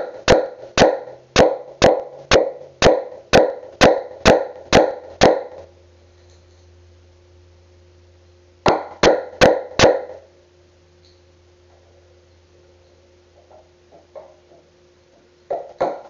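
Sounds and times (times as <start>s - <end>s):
hammer striking wood chisel: 0.0s - 5.7s, 8.7s - 10.2s, 15.5s - 16.0s.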